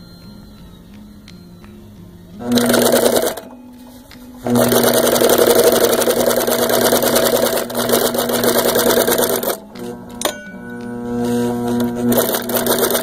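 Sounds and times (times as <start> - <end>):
sewing machine stitching: 2.4 - 3.5, 4.4 - 9.9, 11.5 - 13.0.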